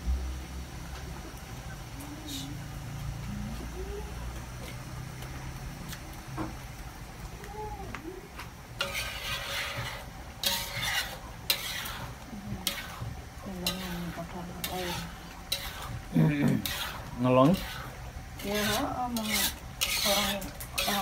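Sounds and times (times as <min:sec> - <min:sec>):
hot pan sizzling: 0:00.0 - 0:21.0
metal spatula scraping a wok: 0:08.8 - 0:21.0.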